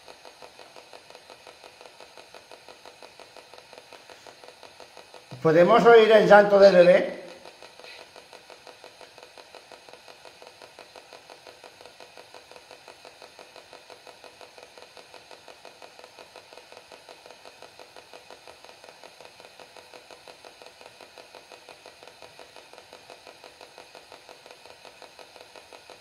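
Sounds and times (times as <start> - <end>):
mechanical pulsing from small machine: 0.0 - 26.0.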